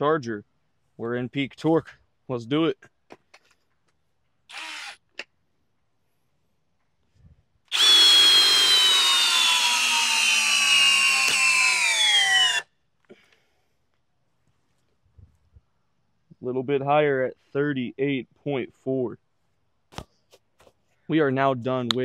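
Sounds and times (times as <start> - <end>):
drill driving screw into log: 4.5 - 5.3, 7.7 - 12.7.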